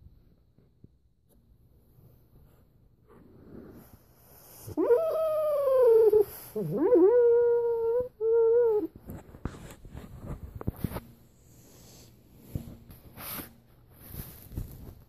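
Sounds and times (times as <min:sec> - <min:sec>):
dog whining in sleep: 0:04.5 - 0:09.2.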